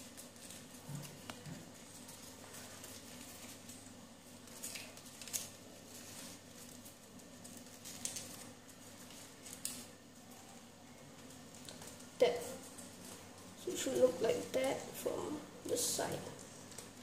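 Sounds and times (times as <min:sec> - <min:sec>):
paper rustling and crinkling: 0:00.0 - 0:17.0
sharp paper crackles: 0:00.0 - 0:17.0.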